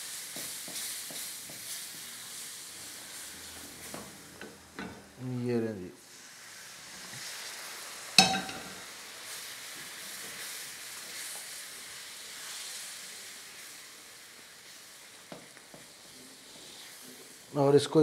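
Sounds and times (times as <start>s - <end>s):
syrup sizzling in frying pan: 0.0s - 18.0s
metal saucepan clank: 8.2s - 8.8s.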